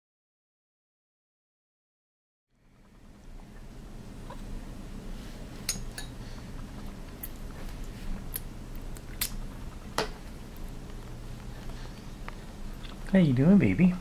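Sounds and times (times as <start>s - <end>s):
spoon clinking against a bowl: 5.7s - 6.2s.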